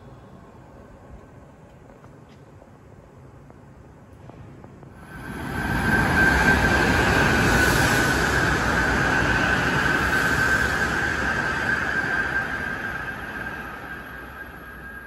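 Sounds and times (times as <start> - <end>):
train passing at speed: 3.0 - 15.0
high whine: 4.6 - 15.0.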